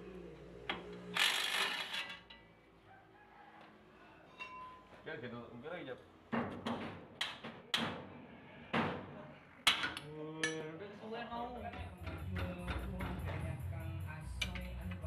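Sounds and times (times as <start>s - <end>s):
metal tools clanking: 4.3s - 4.9s.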